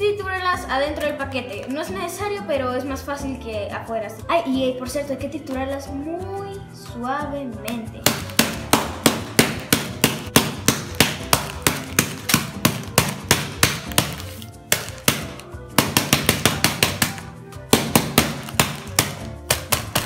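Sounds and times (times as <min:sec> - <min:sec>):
background music: 0:00.0 - 0:20.0
wooden spoon whacking packs: 0:08.1 - 0:20.0.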